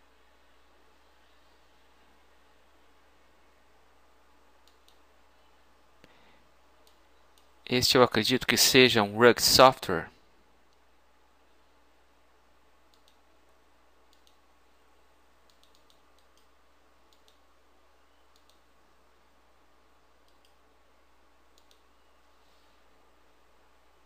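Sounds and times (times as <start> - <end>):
computer mouse clicks: 4.6 - 5.1, 12.9 - 13.2, 14.1 - 14.4, 15.4 - 17.4, 18.3 - 18.7, 20.2 - 20.6, 21.5 - 21.9.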